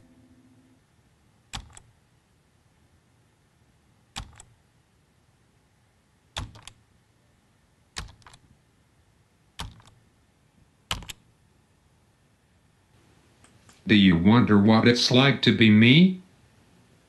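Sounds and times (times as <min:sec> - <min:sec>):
keyboard keystrokes clicking: 0:01.5 - 0:01.9, 0:04.2 - 0:04.5, 0:06.4 - 0:06.8, 0:08.0 - 0:08.4, 0:09.6 - 0:10.0, 0:10.9 - 0:11.2.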